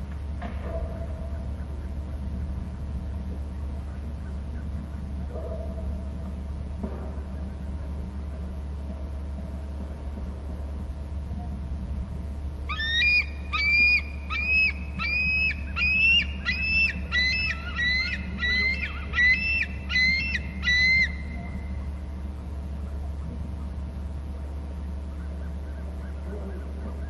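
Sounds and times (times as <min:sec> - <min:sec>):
low hum: 0:00.0 - 0:27.0
eagle high piping calls: 0:12.7 - 0:21.8.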